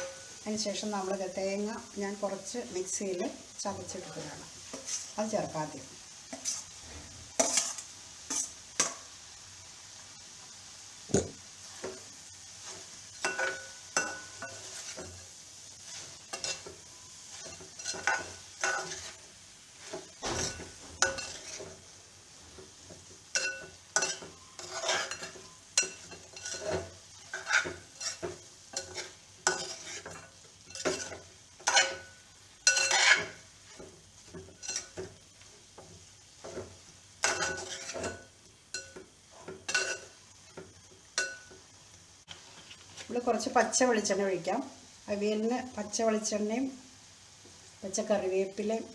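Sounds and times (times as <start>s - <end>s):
metal spoon scraping a pot: 6.3s - 8.9s, 19.9s - 21.7s, 23.3s - 33.4s, 37.2s - 38.2s, 38.8s - 40.1s.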